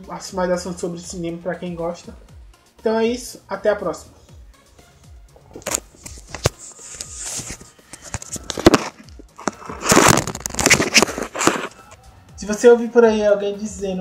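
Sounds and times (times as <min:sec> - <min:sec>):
rubbing against microphone: 0:05.4 - 0:11.9.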